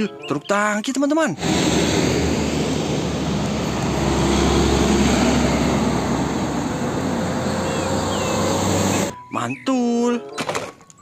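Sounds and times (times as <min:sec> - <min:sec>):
truck driving past: 0:01.4 - 0:09.2.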